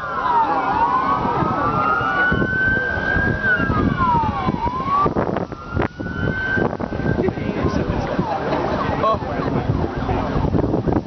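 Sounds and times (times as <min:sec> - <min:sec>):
siren wailing: 0:00.0 - 0:08.4
crowd noise: 0:00.0 - 0:11.0.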